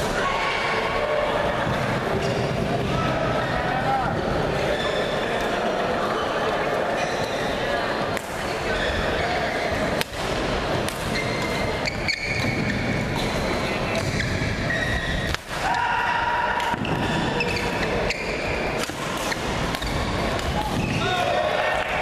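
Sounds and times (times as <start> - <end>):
spectator chatter: 0.0 - 22.0
sneakers squeaking on court: 1.7 - 2.8, 11.1 - 15.3, 16.8 - 21.0
racket striking shuttlecock: 15.2 - 15.8, 18.8 - 21.0.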